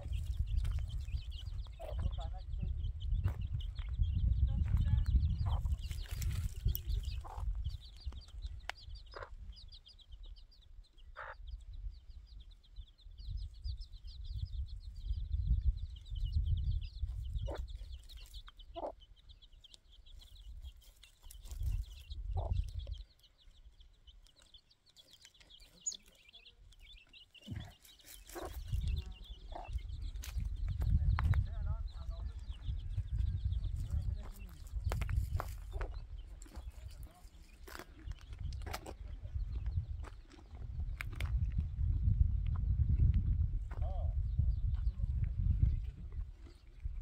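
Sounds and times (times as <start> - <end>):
low wind rumble: 0.0 - 19.5, 21.5 - 23.5, 28.4 - 37.2, 37.8 - 47.0
chicks peeping: 0.0 - 47.0
hen clucking: 1.6 - 2.4, 5.4 - 5.9, 7.1 - 7.8, 8.7 - 9.6, 11.1 - 11.6, 17.2 - 23.3, 24.1 - 30.0, 35.3 - 38.0.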